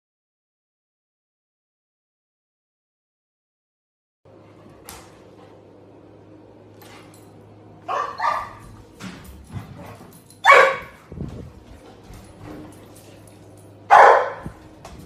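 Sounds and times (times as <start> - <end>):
dog barking: 7.9 - 8.7, 10.4 - 11.0, 13.9 - 14.6.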